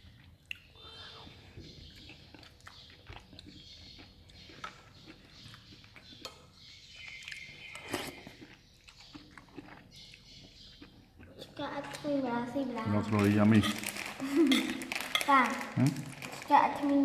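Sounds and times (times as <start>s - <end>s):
chewing: 0.0s - 12.2s.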